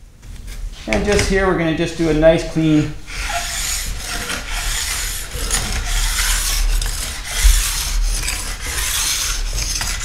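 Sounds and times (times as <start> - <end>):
file rasping on steel edge: 3.1 - 10.0.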